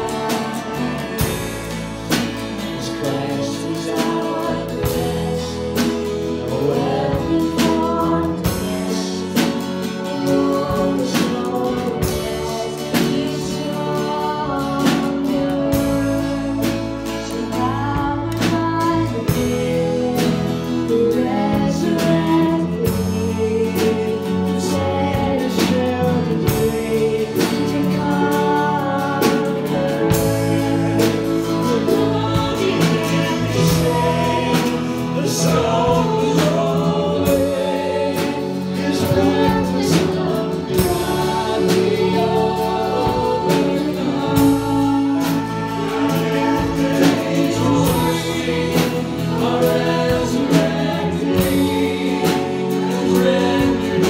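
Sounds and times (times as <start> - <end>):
instrumental accompaniment: 0.0 - 54.0
voices singing together: 0.0 - 54.0.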